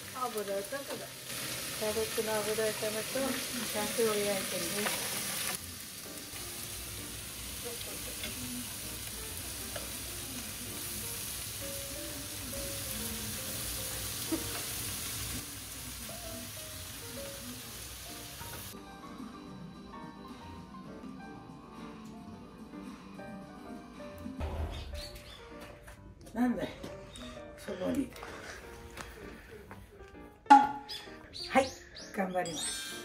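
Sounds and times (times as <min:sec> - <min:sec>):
cabbage sizzling in a pan: 0:00.0 - 0:18.8.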